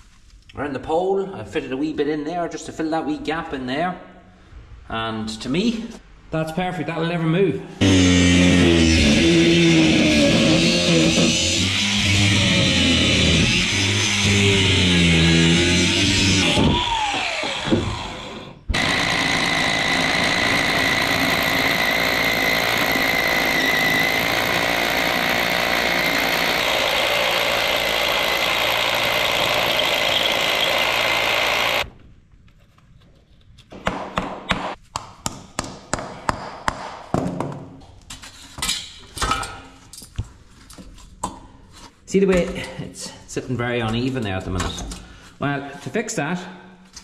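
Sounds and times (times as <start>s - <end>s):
angle grinder spinning down: 7.8s - 31.8s
hammer drill boring into concrete: 7.8s - 31.8s.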